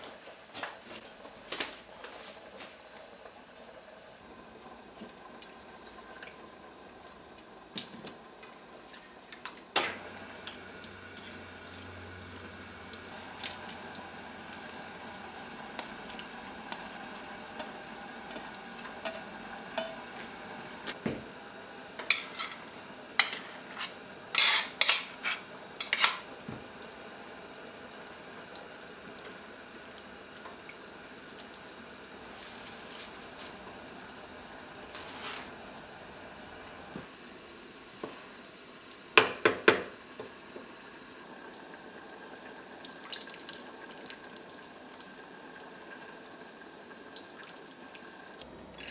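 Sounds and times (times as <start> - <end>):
simmering pot hiss: 0.0 - 48.9
wooden spatula knocking a pot: 39.2 - 39.9.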